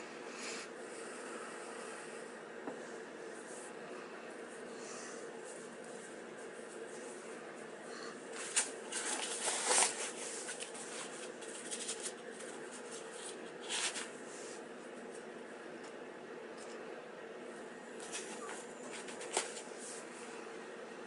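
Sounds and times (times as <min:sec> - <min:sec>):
fabric and cord rustling: 0:08.3 - 0:14.2.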